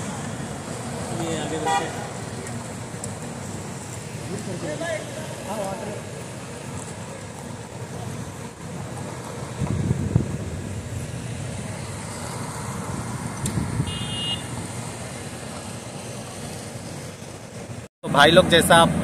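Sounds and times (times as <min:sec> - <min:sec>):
vehicles driving by: 0:00.0 - 0:19.0
short high horn toot: 0:13.8 - 0:14.5.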